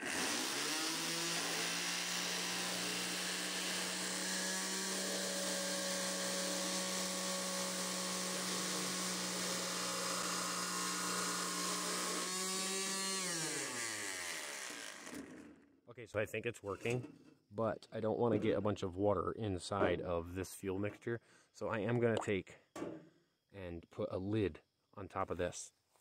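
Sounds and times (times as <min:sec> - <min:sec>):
palm sander motor humming: 0:00.0 - 0:15.4.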